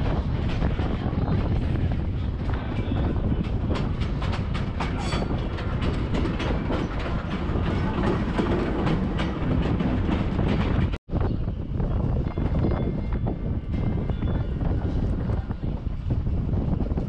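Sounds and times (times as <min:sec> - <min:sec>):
train wheels rumbling on rail: 0:00.0 - 0:17.0
track clicks and clacks: 0:00.1 - 0:11.0.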